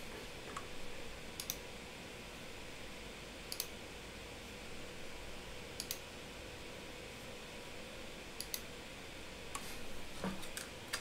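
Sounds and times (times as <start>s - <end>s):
computer mouse clicks: 1.4s - 1.6s, 3.5s - 3.8s, 5.8s - 6.0s, 8.4s - 8.7s.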